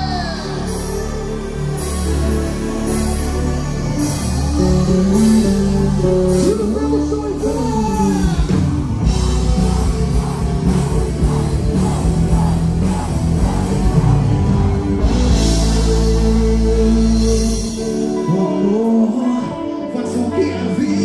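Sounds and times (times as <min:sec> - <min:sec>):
live rock gospel band: 0:00.0 - 0:21.0
steady drum beat: 0:08.2 - 0:17.2.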